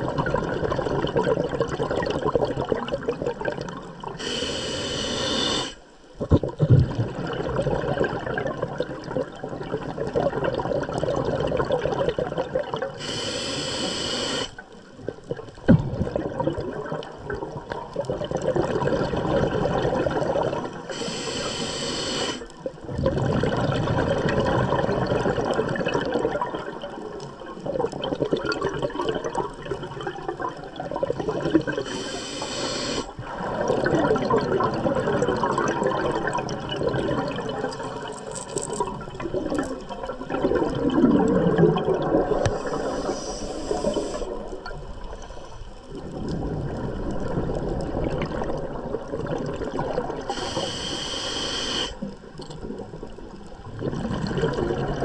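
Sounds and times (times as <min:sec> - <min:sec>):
gurgle of exhaled bubbles: 0:00.0 - 0:13.4, 0:14.3 - 0:51.1, 0:51.7 - 0:55.0
regulator hissing inhalations: 0:04.2 - 0:05.8, 0:13.0 - 0:14.6, 0:20.9 - 0:22.5, 0:31.8 - 0:33.2, 0:42.5 - 0:44.4, 0:50.3 - 0:52.1.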